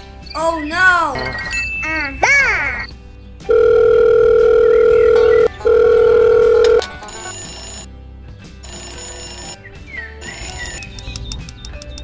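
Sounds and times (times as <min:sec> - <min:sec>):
background music: 0:00.0 - 0:12.0
telephone ringing: 0:03.4 - 0:07.9, 0:08.6 - 0:09.6.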